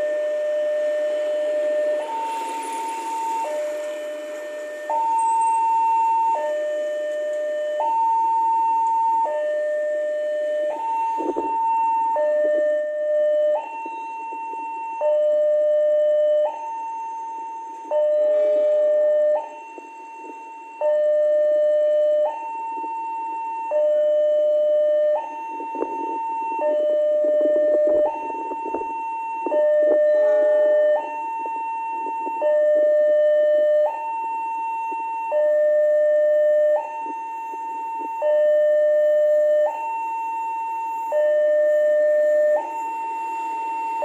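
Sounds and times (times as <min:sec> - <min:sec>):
level crossing alarm: 0:00.0 - 0:44.0
motorbikes and traffic: 0:00.1 - 0:07.6.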